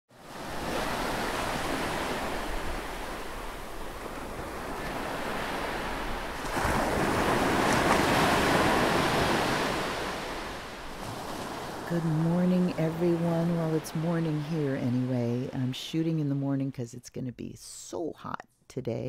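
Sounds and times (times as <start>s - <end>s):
ocean waves washing in: 0.1s - 16.6s.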